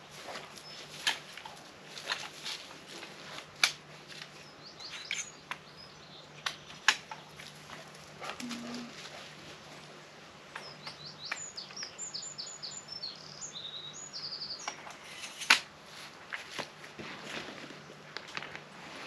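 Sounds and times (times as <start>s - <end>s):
songbird singing: 0.0s - 1.3s, 4.1s - 15.2s.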